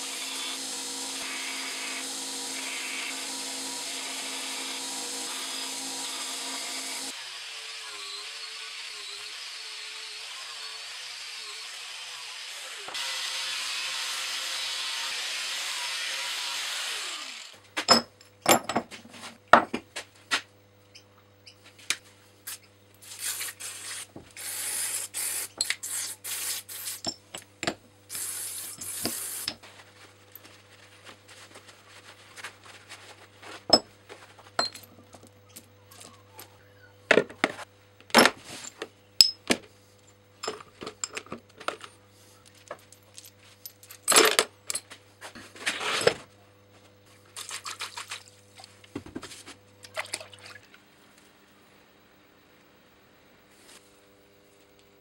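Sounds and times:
metal parts clinking and clattering: 43.0 - 44.9.

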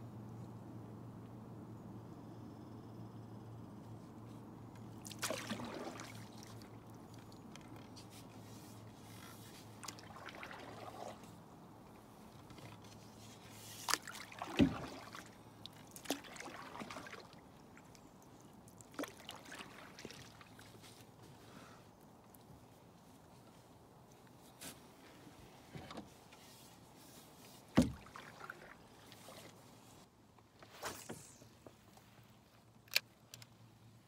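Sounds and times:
water dripping from paddle: 9.8 - 11.3, 13.9 - 20.7
paddle knocking canoe hull: 14.0 - 15.3, 27.7 - 28.7.

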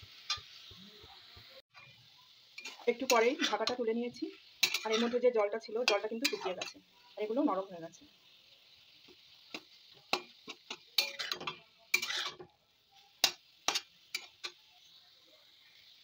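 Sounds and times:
metal spatula scraping a pan: 0.0 - 0.8, 2.6 - 7.5, 9.0 - 14.7
faint steady hiss: 0.0 - 16.0.

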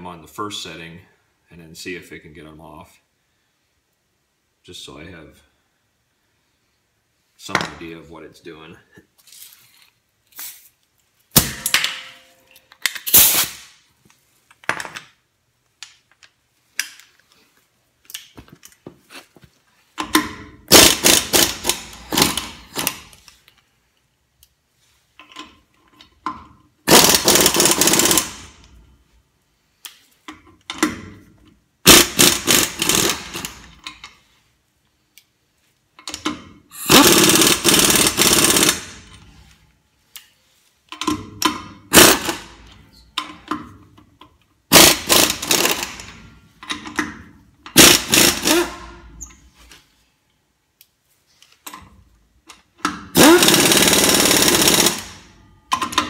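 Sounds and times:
pneumatic impact wrench hammering: 11.4 - 12.2, 13.0 - 13.7, 20.0 - 23.2, 26.9 - 28.7, 31.8 - 34.0, 36.1 - 39.3, 41.0 - 43.6, 44.7 - 49.4, 52.8 - 56.0.

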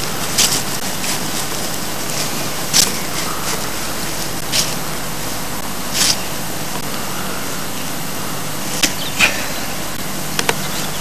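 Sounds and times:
outdoor rushing noise: 0.0 - 10.4.

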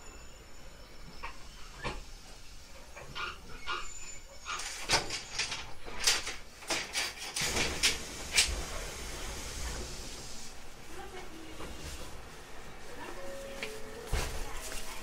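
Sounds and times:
train doors clunking: 0.9 - 15.0
high air hiss: 7.3 - 10.8.

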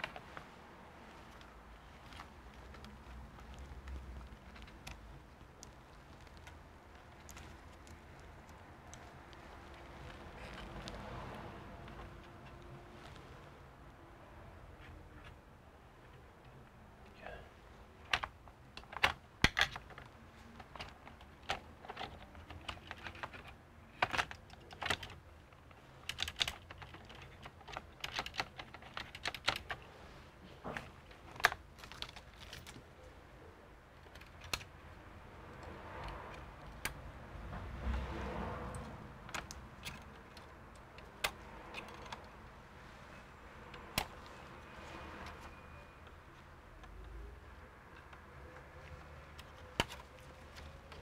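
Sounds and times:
soft rustling: 0.0 - 13.7.

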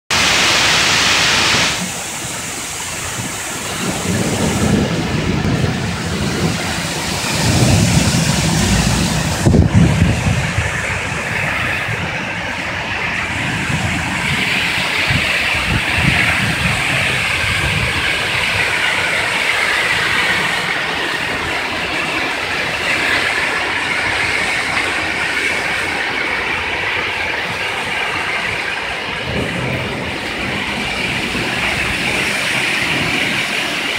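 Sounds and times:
heavy rain on roofs and trees: 0.1 - 33.9
low rumbling: 3.0 - 19.3, 27.4 - 33.9.

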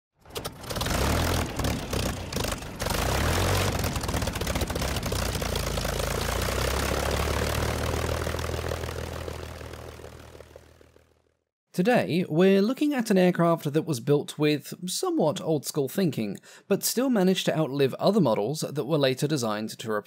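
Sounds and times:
propeller aircraft engine: 0.2 - 11.5.

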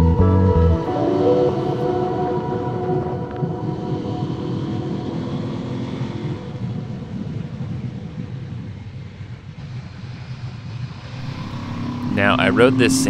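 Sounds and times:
wind and road noise: 2.3 - 13.0
motorcycle engine running: 4.4 - 13.0.

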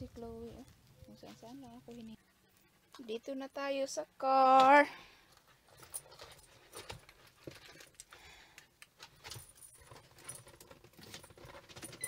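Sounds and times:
light clicks and rustles: 4.6 - 12.0
small metal items jingling: 5.7 - 8.2, 9.1 - 12.0.

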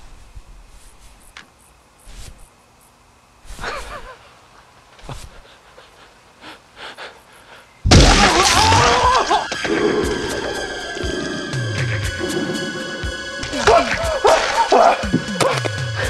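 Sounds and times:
music with sustained tones: 7.9 - 16.0
man screaming: 8.0 - 9.5, 13.5 - 15.1.

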